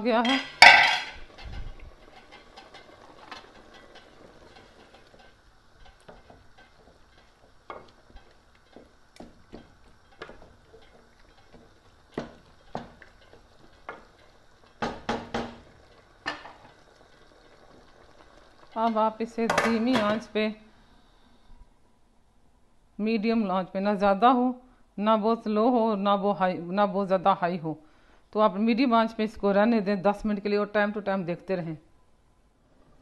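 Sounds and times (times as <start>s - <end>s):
spoon knocking against pot: 0.2s - 1.5s, 2.2s - 16.7s
wooden spoon stirring boiling curry: 0.6s - 20.2s.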